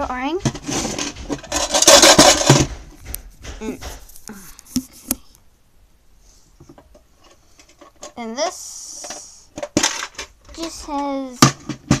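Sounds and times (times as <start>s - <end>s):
sharp knocks: 0.0s - 4.2s
pencil case scraping on desk: 0.4s - 3.2s.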